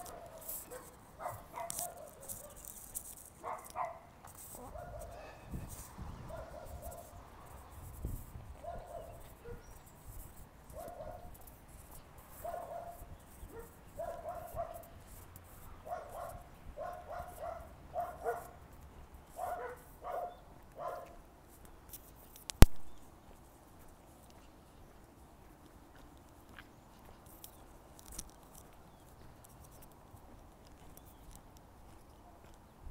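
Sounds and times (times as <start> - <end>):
dog barking: 0.0 - 2.7, 3.4 - 5.5, 6.3 - 7.2, 8.6 - 9.8, 10.7 - 11.4, 12.3 - 15.0, 15.8 - 18.6, 19.3 - 21.2.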